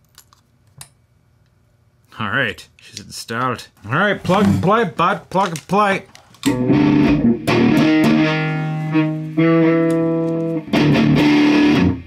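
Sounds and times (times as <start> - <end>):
distorted electric guitar chords: 6.5 - 12.0.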